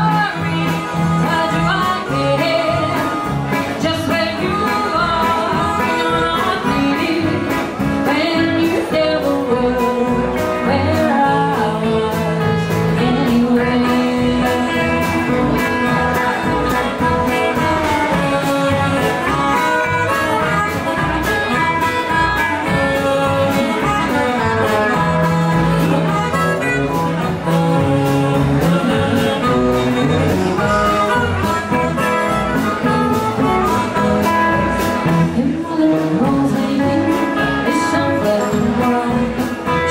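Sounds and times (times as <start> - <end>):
woman singing: 0.0 - 26.6, 34.8 - 39.9
blues band playing: 0.0 - 39.9
harmonica: 12.2 - 35.2.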